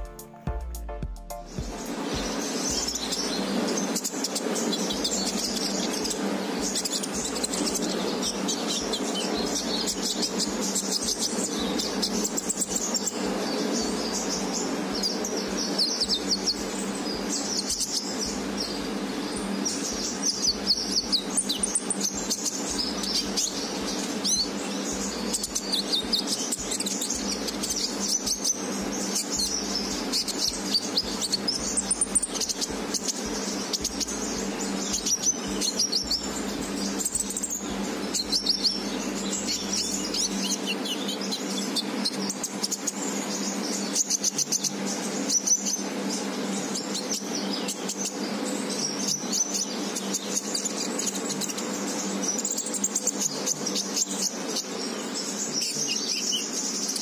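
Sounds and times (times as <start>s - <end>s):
steady low hum: 0.0s - 57.0s
bird twittering: 1.3s - 57.0s.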